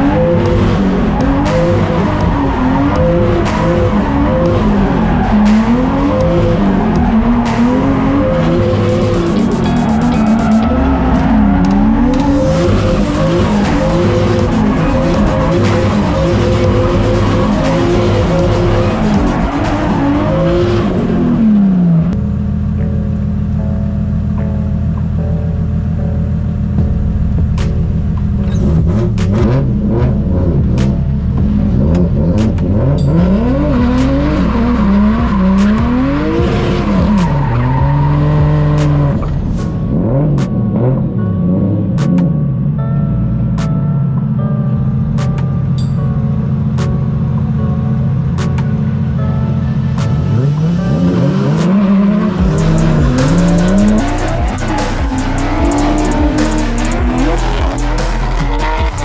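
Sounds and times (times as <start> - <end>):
music with steady beat: 0.0 - 21.2, 22.7 - 42.5, 45.1 - 59.0
car engine revving: 0.0 - 42.8, 44.6 - 59.0
tyres squealing: 52.3 - 59.0.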